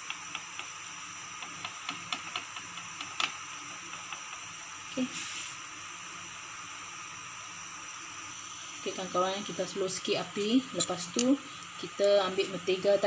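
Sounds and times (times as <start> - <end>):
dough crackling on hot pan: 0.0 - 5.6
steady hiss: 0.0 - 13.0
short louder hiss: 5.0 - 5.6.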